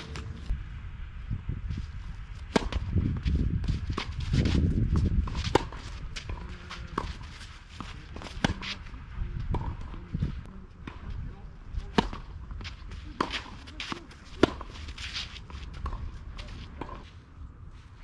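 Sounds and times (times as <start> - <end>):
racket hitting tennis ball: 2.4 - 10.0, 11.8 - 17.0
footsteps scuffing on clay: 2.6 - 8.9, 12.6 - 18.0.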